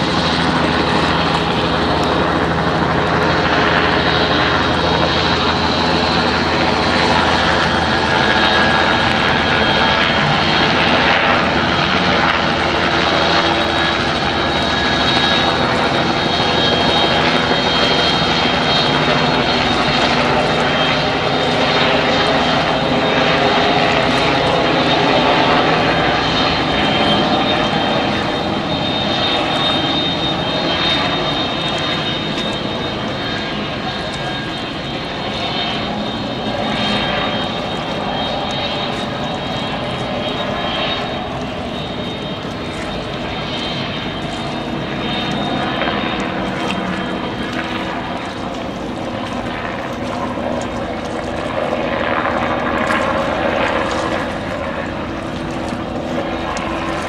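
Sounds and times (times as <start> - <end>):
engine drone: 0.0 - 57.0.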